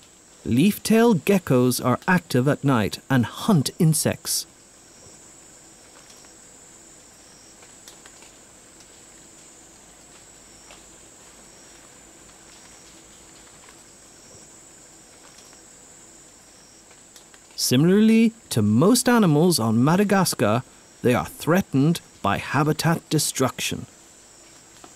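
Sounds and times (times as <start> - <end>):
faint high insect trill: 0.0 - 24.9
high-pitched insect drone: 0.2 - 7.6, 10.4 - 11.9, 13.7 - 16.9
faint ticks: 5.8 - 6.4, 7.2 - 15.7, 16.8 - 17.6.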